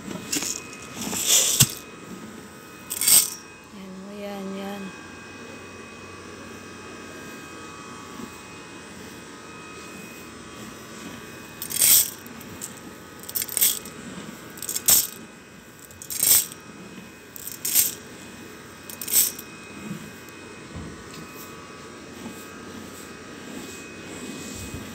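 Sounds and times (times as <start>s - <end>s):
grains pouring into metal tin: 0.3s - 1.8s, 2.9s - 3.4s, 11.6s - 13.9s, 14.6s - 15.2s, 15.9s - 16.6s, 17.4s - 18.0s, 18.9s - 19.4s.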